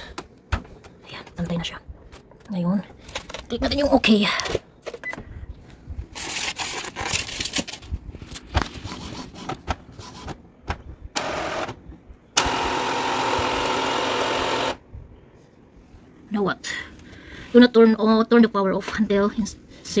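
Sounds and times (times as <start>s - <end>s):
printer motor whir: 11.2s - 14.8s.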